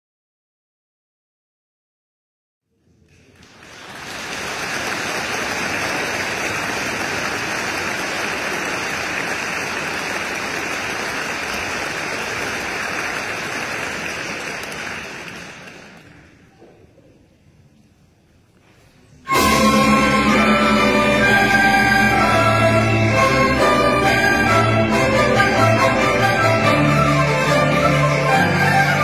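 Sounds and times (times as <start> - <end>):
audience applauding: 3.0 - 16.5.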